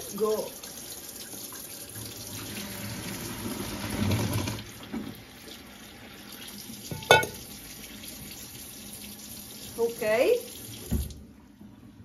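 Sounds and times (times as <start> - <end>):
water pouring into metal sink: 0.0 - 11.2
tap running: 10.8 - 11.2.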